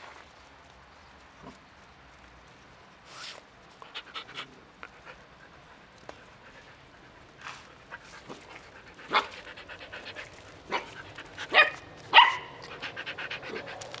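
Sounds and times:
puppies panting: 0:03.8 - 0:11.6, 0:12.6 - 0:14.0.

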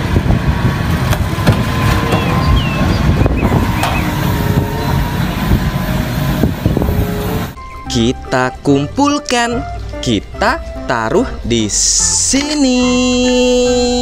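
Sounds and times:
forklift engine running: 0:00.0 - 0:07.6
sharp knocks: 0:01.1 - 0:02.6.

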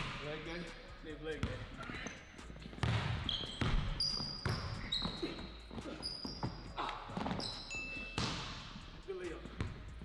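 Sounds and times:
sneakers squeaking on court: 0:01.4 - 0:08.8
basketball bouncing on hardwood: 0:02.8 - 0:04.7.

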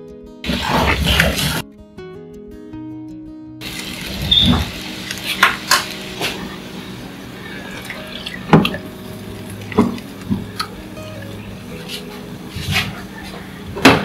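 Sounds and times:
bubbling water: 0:06.3 - 0:11.4.

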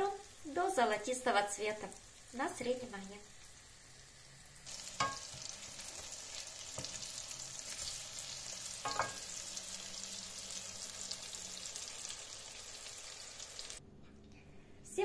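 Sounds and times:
food sizzling in oil: 0:00.0 - 0:13.8
utensils knocking against pan: 0:08.8 - 0:09.3.

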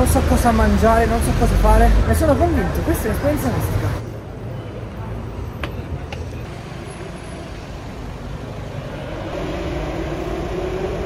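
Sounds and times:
street traffic rumble: 0:00.0 - 0:11.0
vehicle engine hum: 0:05.0 - 0:11.0.

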